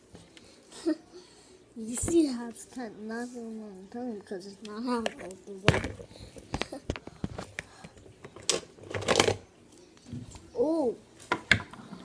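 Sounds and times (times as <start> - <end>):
plastic toys and packaging rustling: 4.9 - 10.0.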